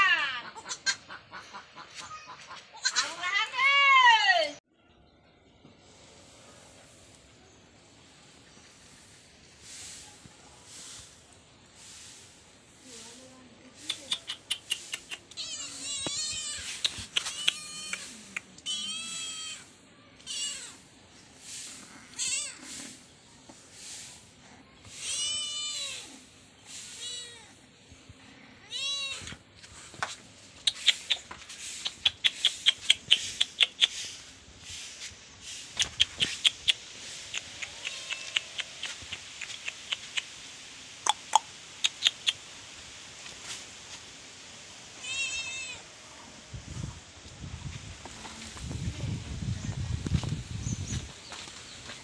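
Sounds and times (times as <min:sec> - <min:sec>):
kitten meowing: 0:15.3 - 0:19.6.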